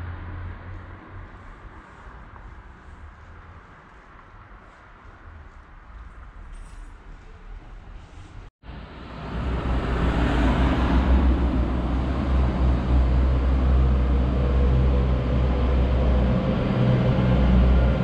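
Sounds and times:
vehicle engine rumbling: 0:00.0 - 0:18.0.

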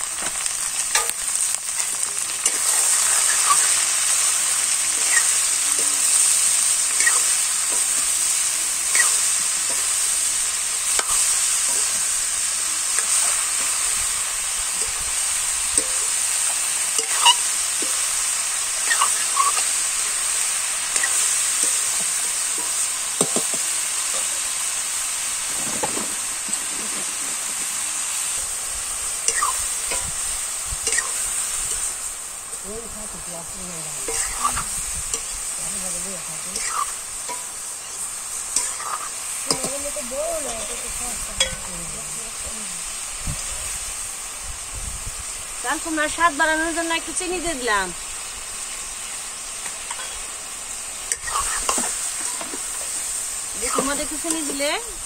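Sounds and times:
vegetables sizzling in a pan: 0:00.0 - 0:55.0
metal spatula scraping a pan: 0:02.4 - 0:08.2, 0:08.8 - 0:12.0, 0:15.7 - 0:24.5, 0:29.2 - 0:30.2, 0:30.8 - 0:32.0, 0:34.0 - 0:35.5, 0:36.3 - 0:41.7, 0:49.8 - 0:50.2, 0:51.1 - 0:52.8, 0:53.6 - 0:54.6.

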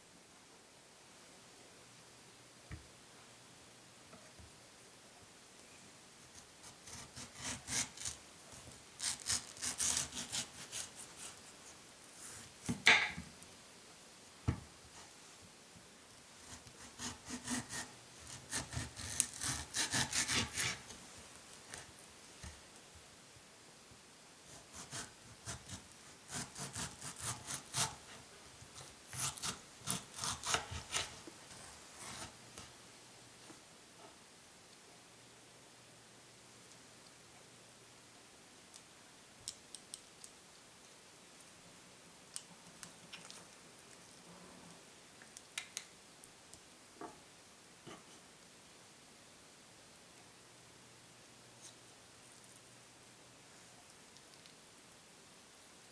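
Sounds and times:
knife sawing through mango: 0:09.0 - 0:11.3, 0:16.8 - 0:20.8.

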